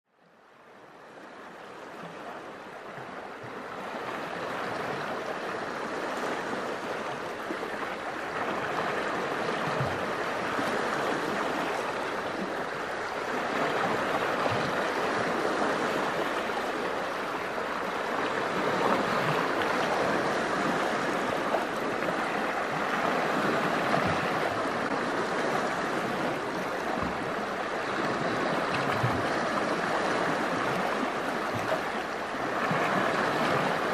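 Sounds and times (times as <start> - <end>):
low thump of waves: 18.3 - 31.9.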